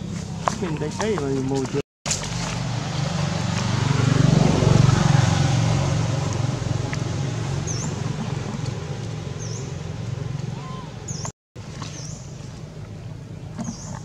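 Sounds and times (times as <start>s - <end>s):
vehicle engine passing by: 2.1s - 12.2s.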